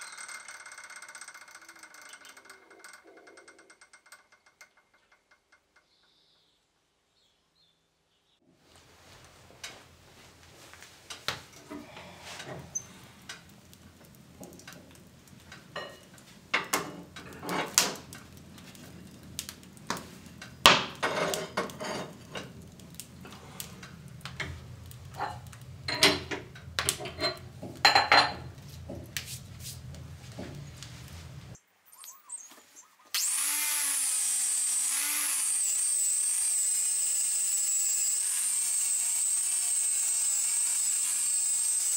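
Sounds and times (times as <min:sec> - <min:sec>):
metal clanking on iron stove: 0:14.4 - 0:18.1, 0:20.4 - 0:22.6, 0:23.2 - 0:29.2.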